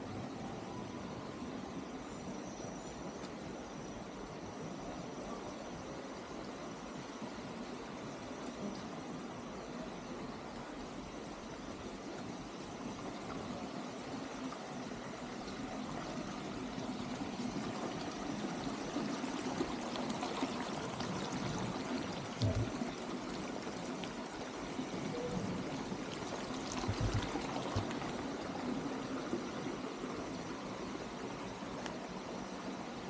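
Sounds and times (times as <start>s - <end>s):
fountain water splashing into pool: 15.5s - 30.6s.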